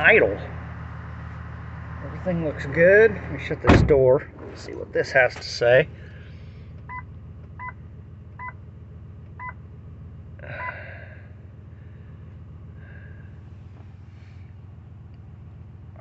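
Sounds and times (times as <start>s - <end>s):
engine idling: 0.0s - 16.0s.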